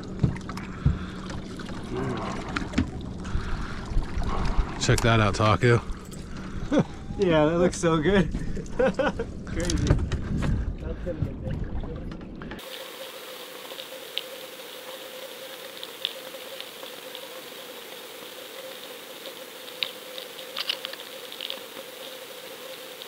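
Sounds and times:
faint hum: 0.0 - 23.0
steady hiss: 12.6 - 23.0
small clicks and crackles: 13.7 - 23.0.

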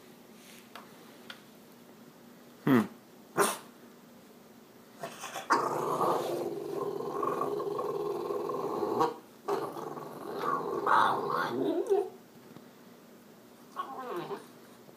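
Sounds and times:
dog barking: 3.4 - 3.7
dog growling: 5.0 - 12.2, 13.7 - 14.6.

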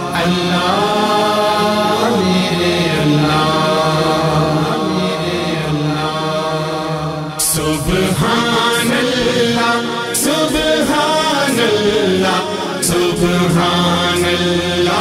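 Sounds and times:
low vocal drone: 0.0 - 15.0
man singing a chant: 0.0 - 15.0.

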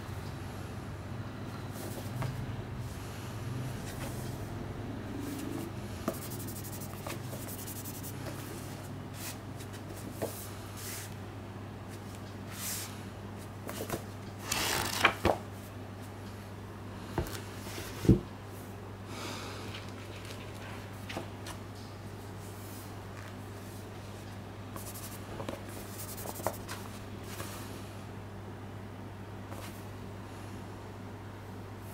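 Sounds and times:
steady low hum: 0.0 - 14.3, 15.7 - 31.9
gloved hands rubbing book covers: 5.3 - 9.4, 24.8 - 27.0.

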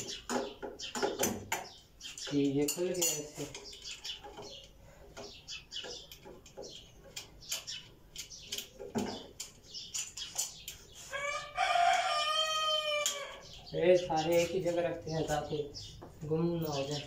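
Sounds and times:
rooster crowing: 11.1 - 13.4.

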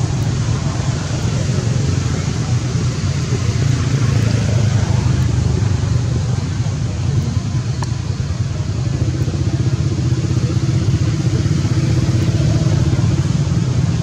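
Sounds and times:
low engine rumble: 0.0 - 14.0.

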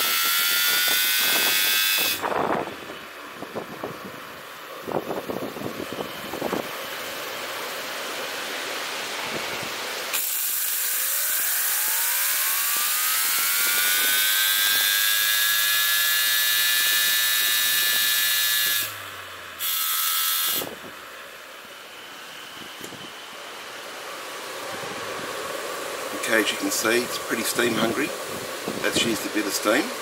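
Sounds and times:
turbine rotor whine: 0.0 - 30.0
wind noise: 0.4 - 6.8, 26.2 - 29.5
loud steam hiss: 21.8 - 30.0.

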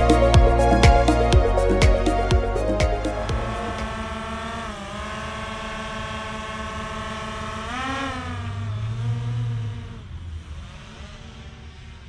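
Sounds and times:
drone propellers whining: 0.0 - 12.0.

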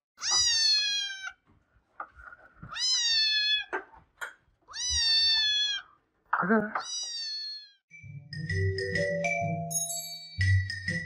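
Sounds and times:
kitten meowing: 0.2 - 1.4, 2.7 - 3.8, 4.7 - 5.9, 6.8 - 7.8.

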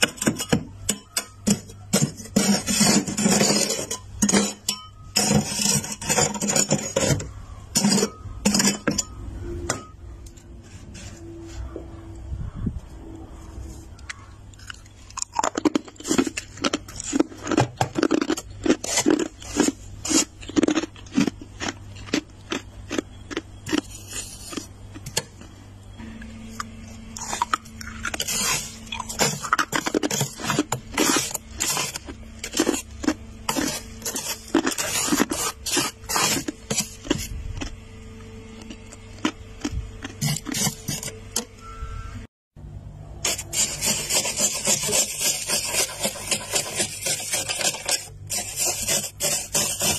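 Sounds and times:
frost being scraped: 1.5 - 4.6, 5.2 - 8.8, 15.4 - 21.4, 23.7 - 24.7, 27.2 - 37.4, 40.0 - 41.1, 43.2 - 49.9.

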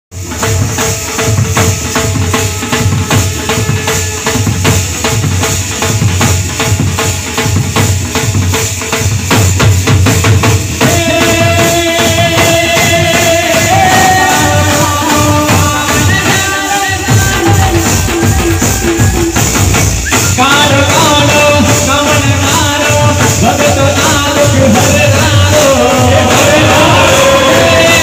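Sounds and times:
drum beating fast rhythm: 0.1 - 28.0
hand cymbals jingling: 0.2 - 28.0
held melody line: 10.8 - 28.0.

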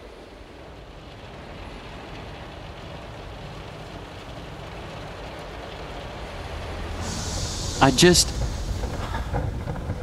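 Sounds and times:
muffled water spraying on car: 2.3 - 10.0
low rumble: 5.8 - 10.0.

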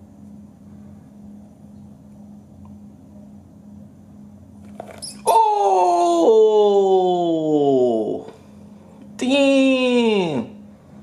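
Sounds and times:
man exclaiming whoa: 5.2 - 8.3, 9.2 - 10.6.

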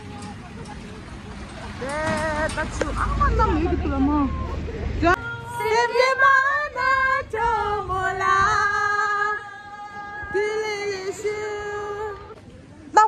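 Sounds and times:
woman singing slow melody: 5.2 - 12.3.

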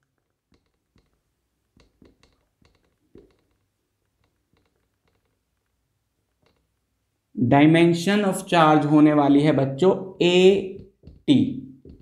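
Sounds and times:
marker writing on whiteboard: 0.5 - 3.6, 10.4 - 12.0.

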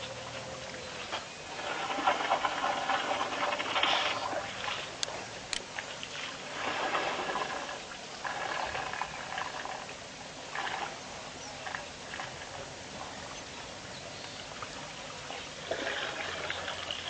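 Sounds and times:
water splashing and trickling: 0.0 - 17.0.

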